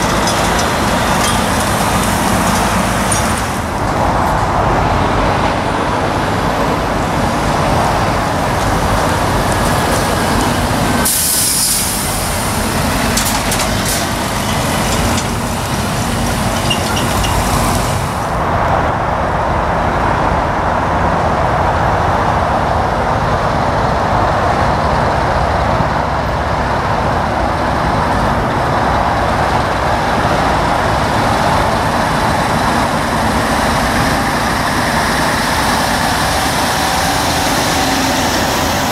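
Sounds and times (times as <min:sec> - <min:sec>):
diesel truck engines running: 0:00.0 - 0:38.9
air brake hissing: 0:11.0 - 0:12.6.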